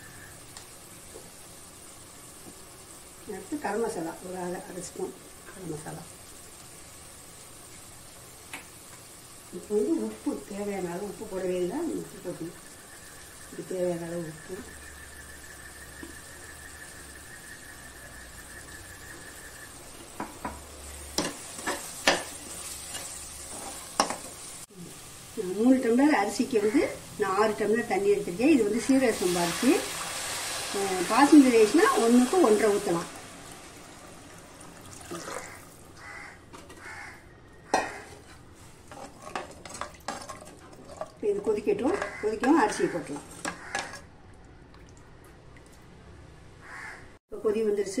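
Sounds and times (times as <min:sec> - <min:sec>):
faint sizzle: 0:00.0 - 0:48.0
metal spatula scraping a pot: 0:21.2 - 0:24.2, 0:37.7 - 0:44.1
water running into pot: 0:25.7 - 0:36.0, 0:38.8 - 0:44.1
metal ladle stirring and knocking: 0:37.8 - 0:44.1.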